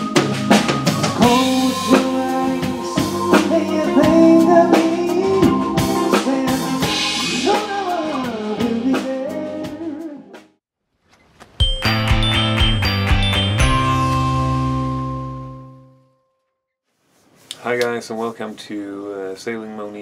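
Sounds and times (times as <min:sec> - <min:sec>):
live band playing: 0:00.0 - 0:10.1.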